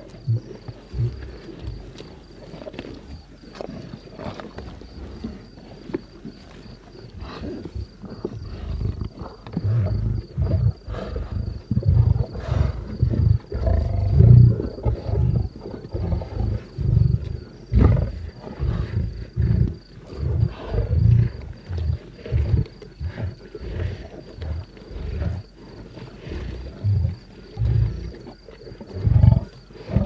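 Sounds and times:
lions growling: 7.2 - 30.0.

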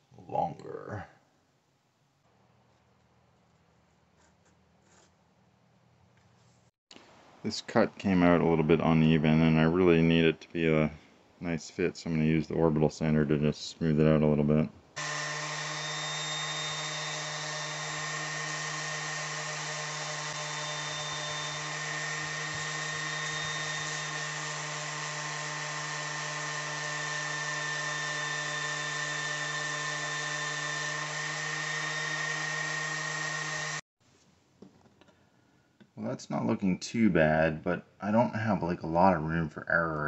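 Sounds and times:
orbital sander running: 15.0 - 33.8.

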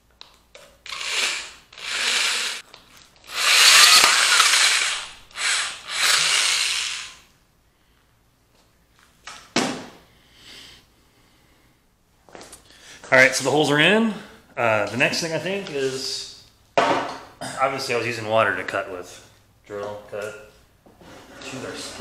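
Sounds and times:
electric drill grinding glass: 0.9 - 2.6, 3.3 - 7.3.

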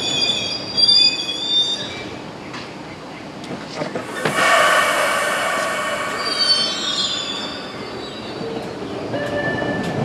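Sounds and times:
subway train pulling out: 0.0 - 10.0
high wheel squeal: 4.1 - 8.6.

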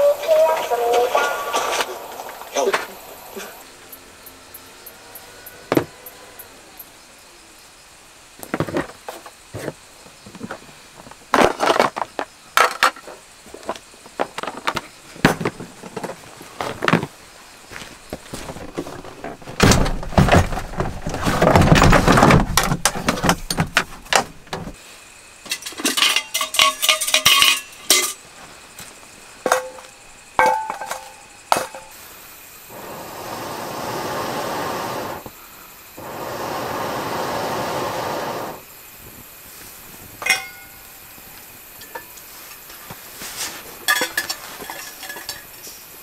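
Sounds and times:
metal cookware rustling and knocking: 25.5 - 28.2, 43.9 - 45.5
ringing metal clinks: 40.2 - 40.9.

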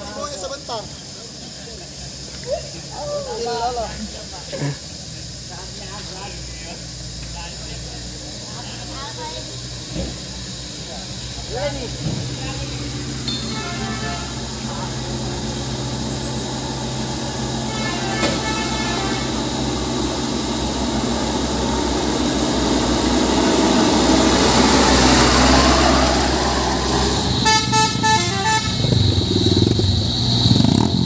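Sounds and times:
truck diesel engines climbing: 0.0 - 31.0
vehicle horn toots: 13.2 - 14.9, 17.5 - 19.6, 27.4 - 29.1.

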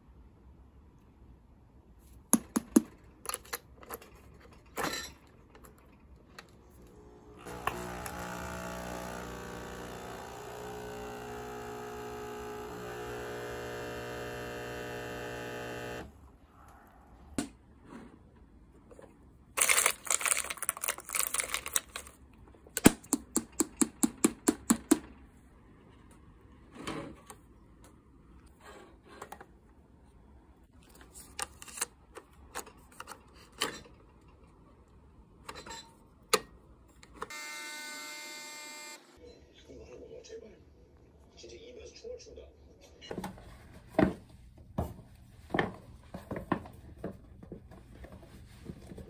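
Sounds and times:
coffee machine pump humming: 6.8 - 16.1
metal capsules clattering in plastic box: 19.6 - 22.1.

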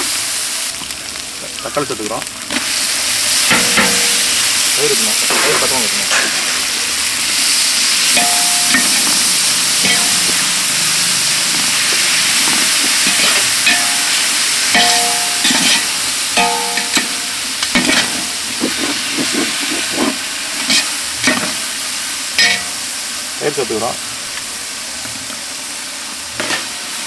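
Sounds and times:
tomatoes sizzling in hot oil: 0.0 - 27.0
pot ringing: 3.5 - 4.3, 8.1 - 10.5, 13.0 - 18.4, 22.4 - 22.8
metal ladle scraping a pot: 8.2 - 10.6, 11.2 - 21.6.

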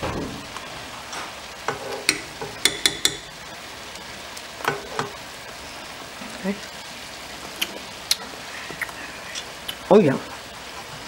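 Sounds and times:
meat sizzling: 0.0 - 11.0
metal utensils tapping a saucepan: 1.7 - 3.4.

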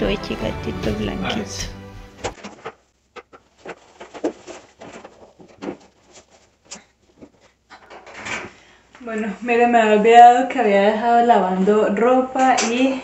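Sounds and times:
fabric rustling: 2.3 - 8.0.

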